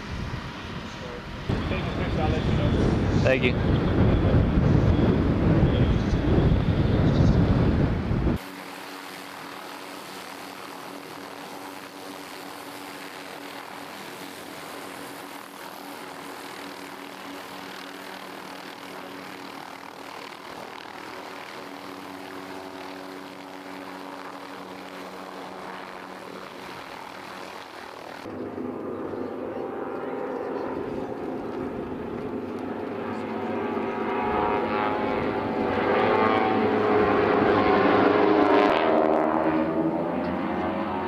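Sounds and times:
helicopter turbine and rotor: 0:00.0 - 0:41.0.

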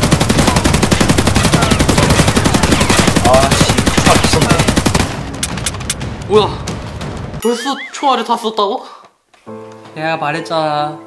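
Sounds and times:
machine-gun fire: 0:00.0 - 0:07.4.

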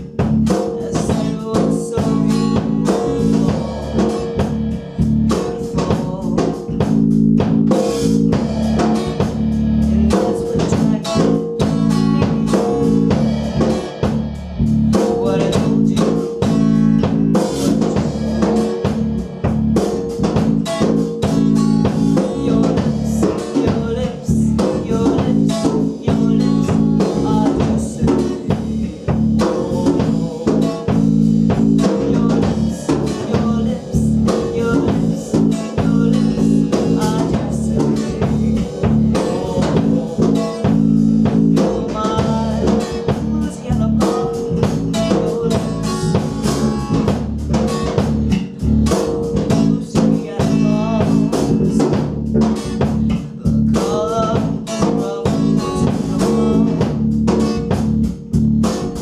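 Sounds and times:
acoustic guitar: 0:00.0 - 0:59.0
drum kit steady beat: 0:00.0 - 0:59.0
electric bass: 0:00.0 - 0:59.0.

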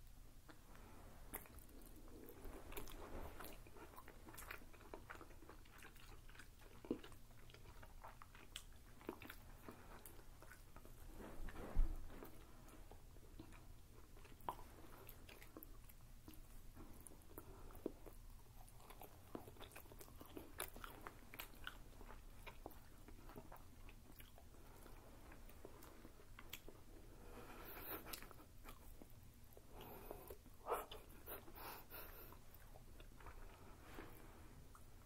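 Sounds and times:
people chewing with mouth clicks: 0:00.0 - 0:35.0.

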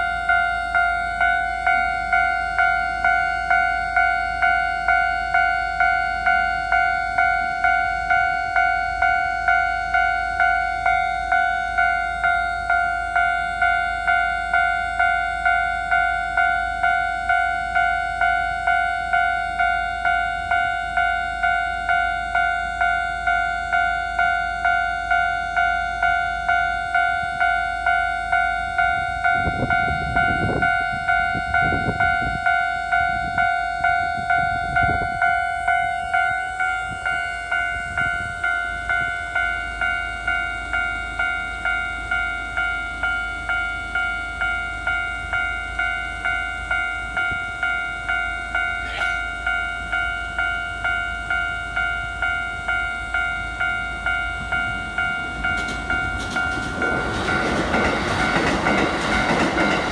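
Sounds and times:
level-crossing warning bell: 0:00.0 - 0:59.9
train wheels knocking over rail joints: 0:55.5 - 0:59.9.

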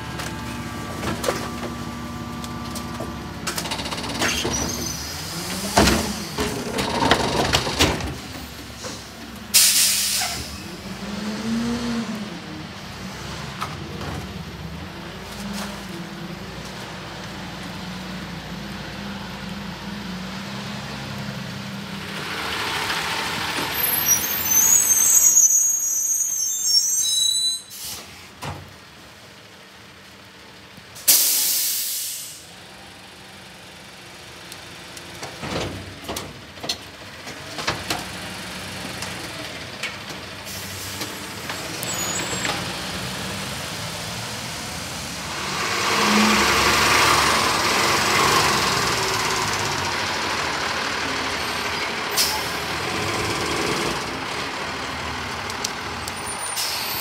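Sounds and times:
diesel engine running: 0:00.0 - 0:20.2, 0:32.6 - 0:57.0
hydraulic packer squealing: 0:03.6 - 0:07.8, 0:23.7 - 0:28.0, 0:41.6 - 0:42.6
air brake hiss: 0:08.7 - 0:10.6, 0:27.5 - 0:28.3, 0:31.0 - 0:32.5, 0:56.4 - 0:57.0.

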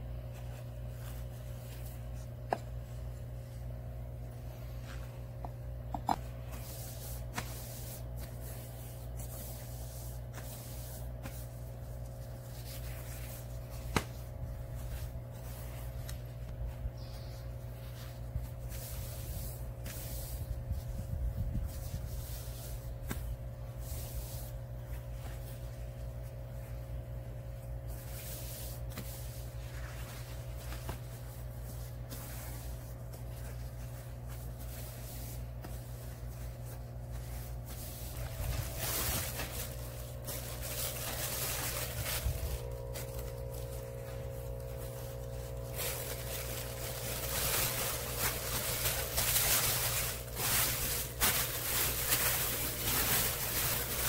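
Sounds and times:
steady low hum: 0:00.0 - 0:54.0
paper rustling and crinkling: 0:06.2 - 0:54.0.

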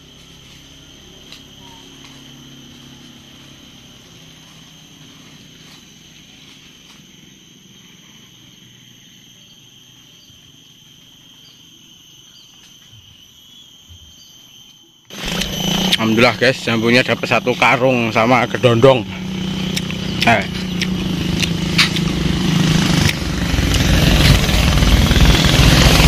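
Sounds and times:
insect chirring: 0:00.0 - 0:26.0
low hum: 0:15.1 - 0:26.0.

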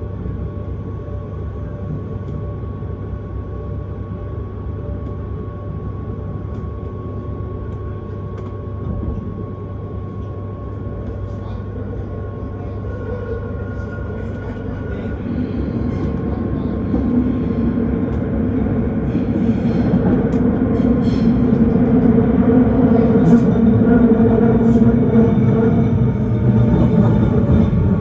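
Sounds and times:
train wheels rumbling on rail: 0:04.8 - 0:28.0.

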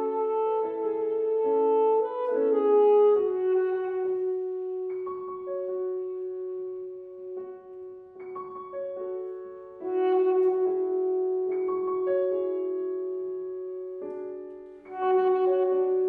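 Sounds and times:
saxophone sustained note: 0:00.0 - 0:07.4, 0:09.8 - 0:12.8, 0:14.8 - 0:16.0
piano chords: 0:00.0 - 0:16.0.

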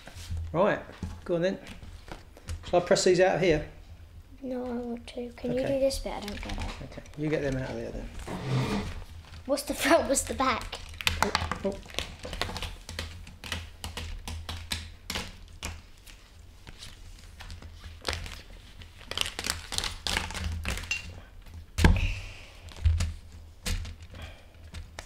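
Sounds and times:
plastic sheets crinkling: 0:09.0 - 0:21.0.

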